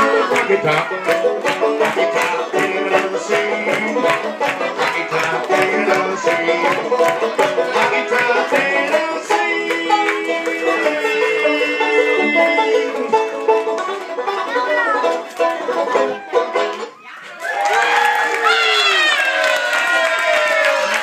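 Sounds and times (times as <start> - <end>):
bluegrass banjo music: 0.0 - 17.0.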